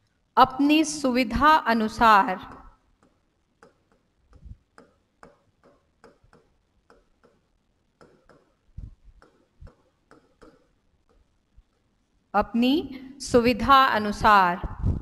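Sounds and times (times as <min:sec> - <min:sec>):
stylus tapping on screen: 0:02.4 - 0:11.9.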